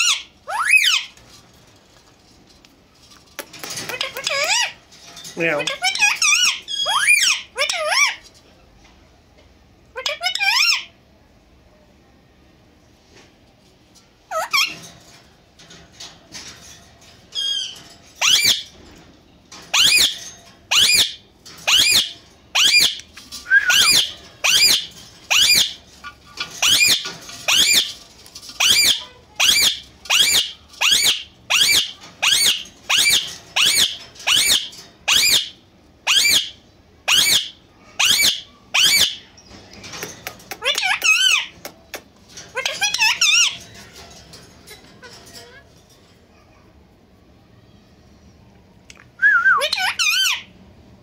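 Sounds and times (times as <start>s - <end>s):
parakeet warbled call: 0.0s - 1.1s, 19.8s - 23.0s, 23.7s - 25.8s, 28.6s - 39.2s
parakeet screeching calls: 0.0s - 1.2s, 5.6s - 8.2s, 10.0s - 10.9s, 14.3s - 14.8s, 17.4s - 18.7s, 19.7s - 23.0s, 23.6s - 27.9s, 28.6s - 39.2s, 42.6s - 43.6s, 49.6s - 50.5s.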